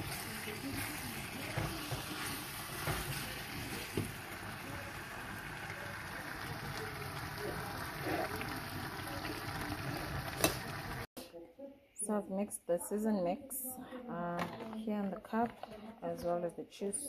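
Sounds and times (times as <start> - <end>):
pots hissing on stovetop: 0.0 - 11.1.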